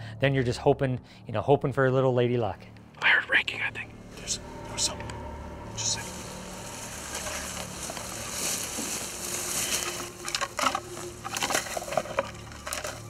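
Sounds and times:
twigs crackling and snapping: 0:05.0 - 0:13.0
brush rustling: 0:05.6 - 0:13.0.

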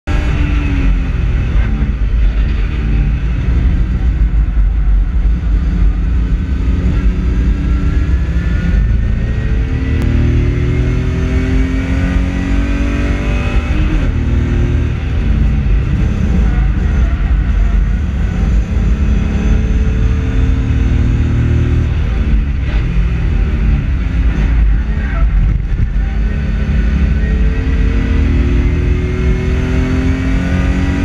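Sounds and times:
race car engine at full load: 0:00.0 - 0:31.0
road and wind noise: 0:00.0 - 0:31.0.

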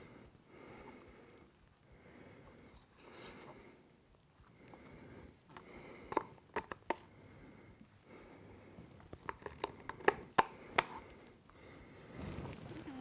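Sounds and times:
plastic cup clicks and taps: 0:06.1 - 0:07.1, 0:09.2 - 0:11.0.

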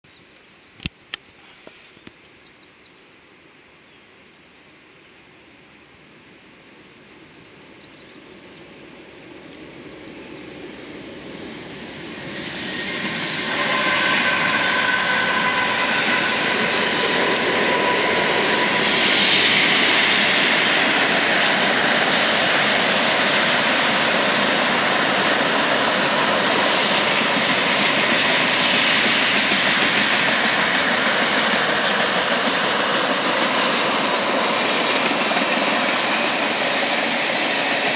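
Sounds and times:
diesel locomotive engines: 0:07.0 - 0:37.9
locomotive whine: 0:09.1 - 0:37.9.

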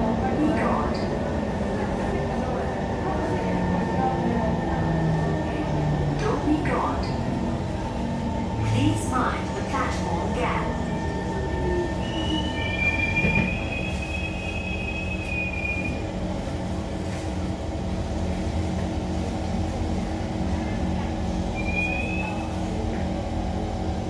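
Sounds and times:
metro train rumble and hum: 0:00.0 - 0:24.0
high squeal of train: 0:00.2 - 0:17.0, 0:20.5 - 0:24.0.

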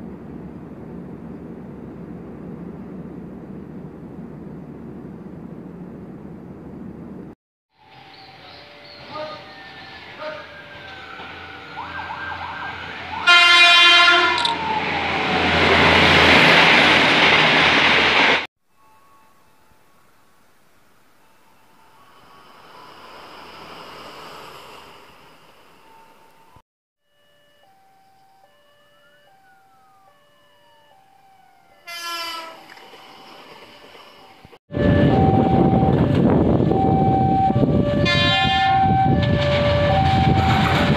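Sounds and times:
train rushing through station: 0:00.0 - 0:18.5, 0:19.1 - 0:26.6, 0:31.7 - 0:40.9
two-tone crossing alarm: 0:07.8 - 0:16.0, 0:25.8 - 0:32.8, 0:34.7 - 0:40.9
train horn blast: 0:10.2 - 0:10.6, 0:13.2 - 0:14.5, 0:31.8 - 0:32.7, 0:36.8 - 0:40.8.

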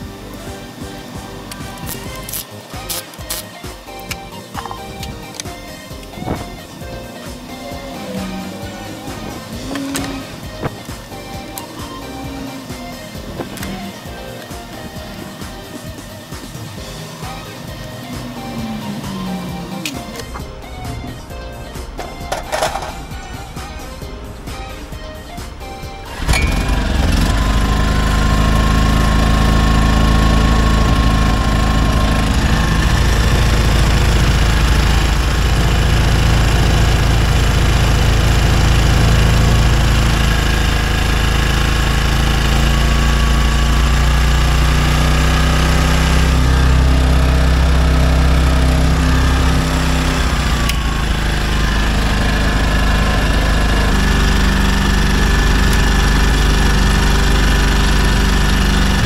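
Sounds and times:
portable generator engine running: 0:00.0 - 0:59.0.

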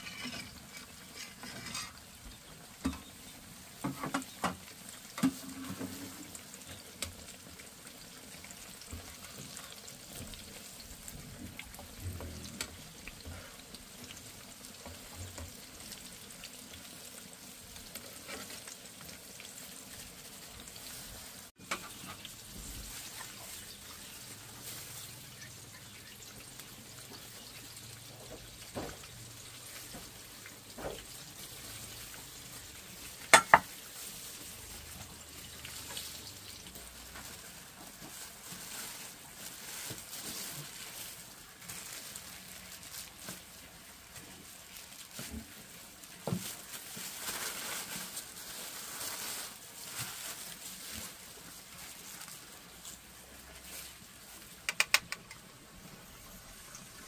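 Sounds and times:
batter sizzling in hot oil: 0:00.0 - 0:57.0.

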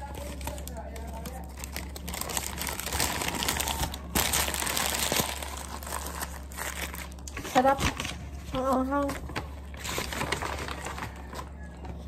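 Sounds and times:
paper wrapper crinkling: 0:00.0 - 0:12.0.

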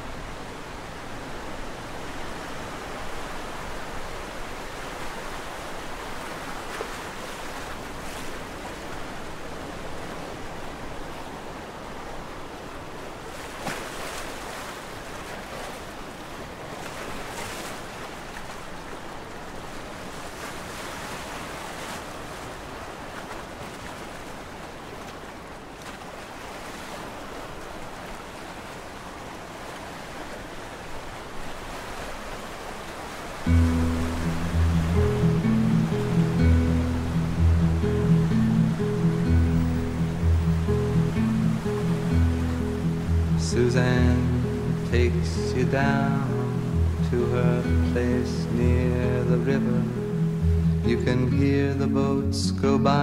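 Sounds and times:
steady rushing noise: 0:33.4 - 0:48.7.

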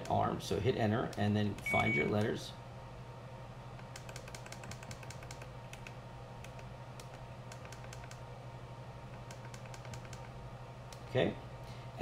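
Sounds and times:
steady low hum: 0:00.0 - 0:12.0
push buttons clicking: 0:01.1 - 0:02.3.

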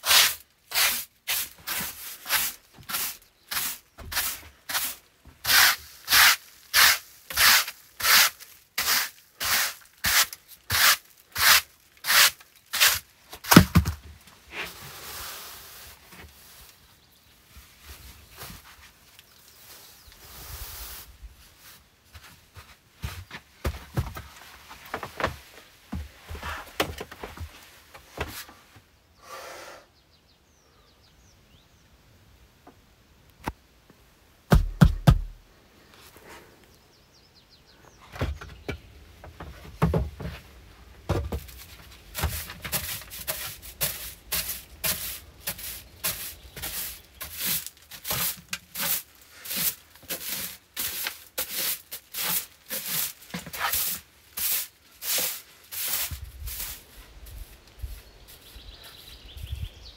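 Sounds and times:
broom sweeping wooden floor: 0:00.0 - 0:13.5, 0:14.4 - 0:28.7, 0:40.2 - 0:59.2
heavy wooden thumps: 0:34.5 - 0:35.4.

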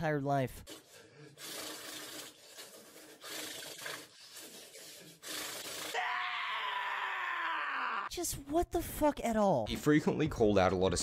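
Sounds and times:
rasping rubbing noise: 0:00.6 - 0:06.0
man groaning: 0:05.9 - 0:08.1.

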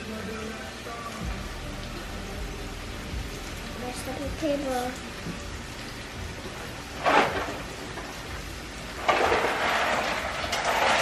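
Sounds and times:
paper towel rustling: 0:06.6 - 0:11.0.

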